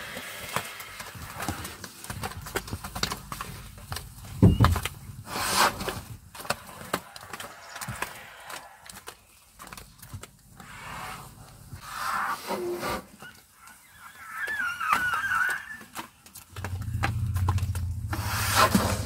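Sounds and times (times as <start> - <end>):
vegetation crackling and rustling: 13.0 - 19.0.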